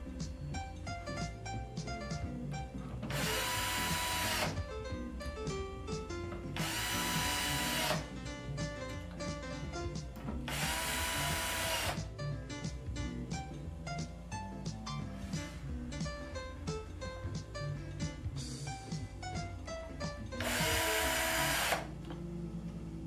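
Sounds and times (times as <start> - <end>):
plucked guitar music: 0.0 - 10.6
cordless drill driving screws: 3.1 - 4.6, 6.6 - 8.1, 10.5 - 12.0, 20.4 - 21.9.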